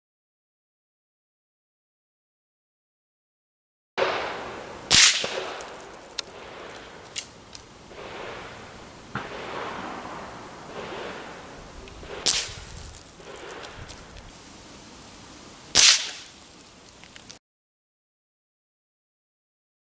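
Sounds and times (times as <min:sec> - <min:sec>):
rifle shots echoing: 0:04.0 - 0:17.1
faint clicks: 0:05.2 - 0:09.4, 0:10.7 - 0:17.4.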